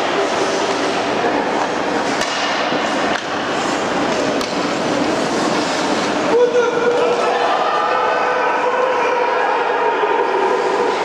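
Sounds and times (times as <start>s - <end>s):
skates scraping on ice: 0.0s - 7.9s
stick hitting puck: 2.1s - 3.4s, 4.3s - 4.6s.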